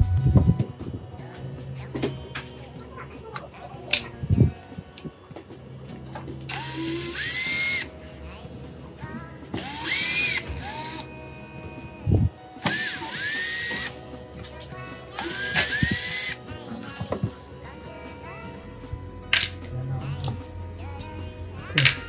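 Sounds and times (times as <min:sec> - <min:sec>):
electric screwdriver whining: 0:06.5 - 0:07.9, 0:09.6 - 0:11.1, 0:11.8 - 0:14.0, 0:15.1 - 0:16.4.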